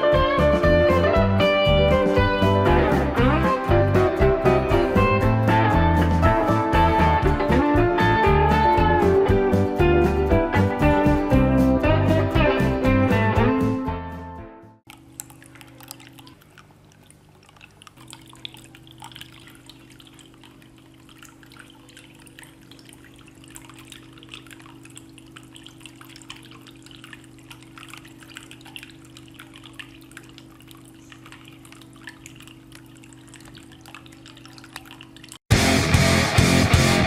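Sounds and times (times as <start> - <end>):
low steady hum: 14.9 - 35.4
water trickling and dripping: 14.9 - 35.5.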